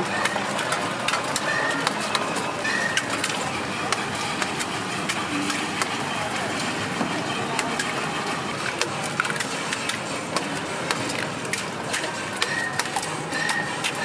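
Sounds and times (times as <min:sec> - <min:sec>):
steady background noise: 0:00.0 - 0:14.0.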